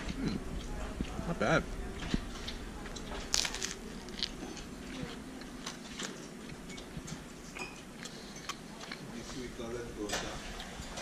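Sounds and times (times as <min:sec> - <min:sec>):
low steady hum: 0:00.0 - 0:11.0
man chewing with mouth clicks: 0:03.3 - 0:09.3.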